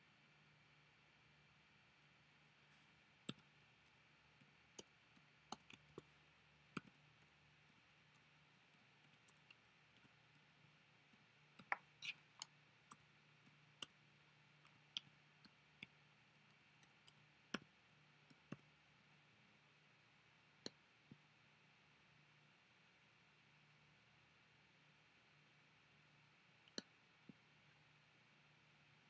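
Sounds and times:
faint low hum: 0.0s - 29.0s
keyboard and mouse clicks: 4.4s - 6.1s.

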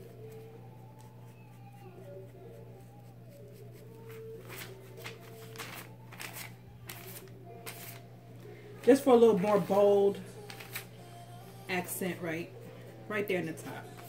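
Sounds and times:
faint background music: 0.0s - 14.0s
brush rustling on foil: 3.6s - 8.0s, 8.9s - 10.9s.

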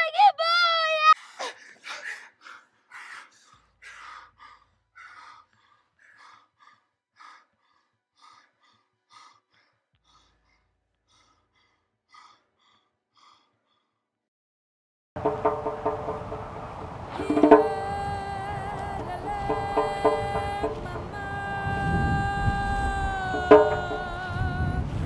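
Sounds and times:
man sobbing: 1.1s - 3.6s.

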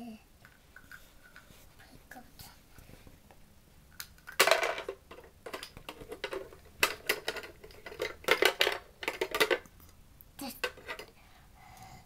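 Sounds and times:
toy pieces rattling on plastic truck: 4.2s - 9.7s, 10.5s - 11.1s.

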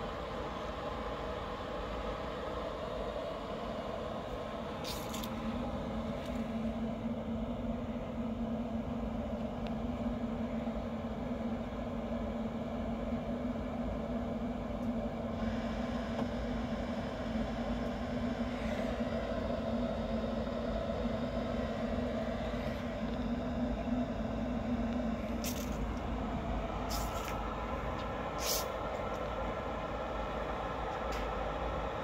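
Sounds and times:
grill motors humming: 0.0s - 32.0s
short hisses or scrapes: 28.4s - 28.8s.

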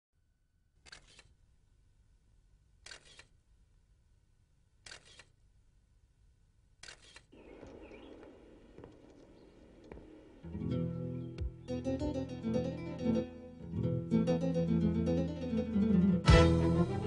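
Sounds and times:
camera shutter clicks: 0.9s - 1.4s, 2.8s - 3.4s, 4.8s - 5.4s, 6.8s - 7.3s.

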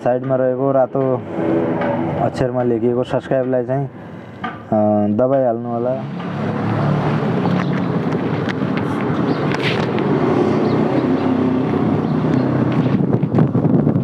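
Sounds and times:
traffic rumble: 0.0s - 14.0s
wind buffeting microphone: 6.5s - 14.0s.

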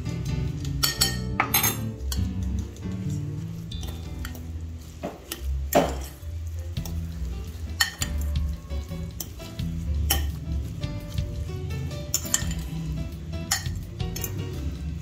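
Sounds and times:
fork stirring wet mixture: 0.5s - 15.0s
fork clinking against glass bowl: 0.8s - 2.3s.

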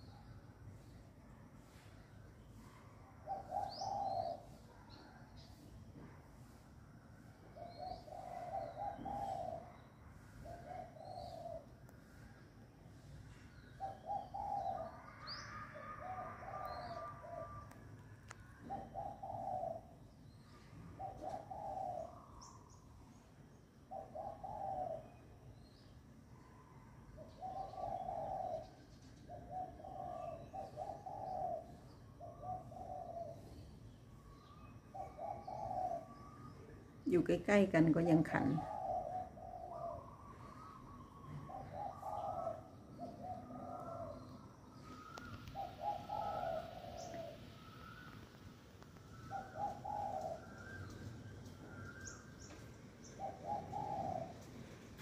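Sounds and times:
dove cooing: 3.2s - 5.2s, 7.5s - 12.1s, 13.7s - 17.8s, 18.4s - 22.8s, 23.8s - 25.8s, 26.4s - 33.8s, 34.4s - 55.0s
second dove cooing higher: 7.6s - 9.8s, 13.8s - 20.0s, 20.8s - 22.6s, 26.7s - 33.6s, 34.9s - 36.4s, 38.2s - 55.0s
faint high bird chirps: 39.7s - 54.5s.

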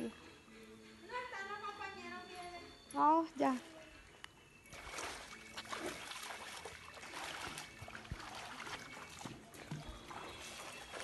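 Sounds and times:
pool water splashing and trickling: 3.0s - 11.0s.

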